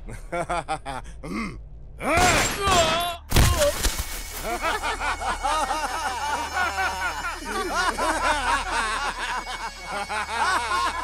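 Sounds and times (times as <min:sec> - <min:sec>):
man laughing: 0:00.1 - 0:01.6, 0:04.4 - 0:11.0.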